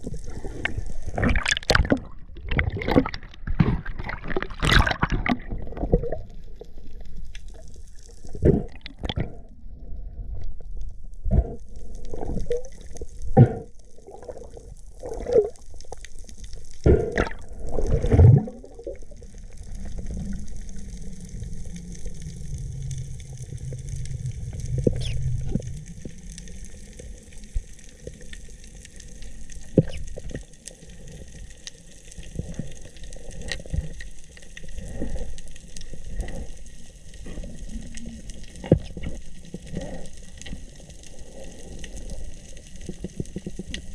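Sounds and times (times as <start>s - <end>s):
water splashes: 0.0s - 9.4s, 11.4s - 28.3s
muffled water sloshing and bubbling: 0.0s - 43.9s
low rumble: 16.8s - 27.7s.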